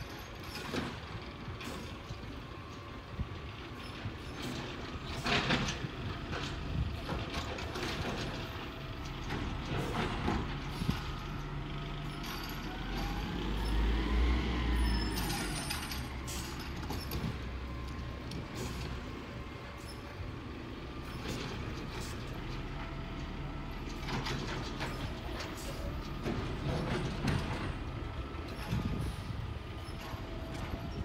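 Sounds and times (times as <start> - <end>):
distant garbage truck engine: 0.0 - 31.0
engine revving with rising whine: 13.1 - 15.2.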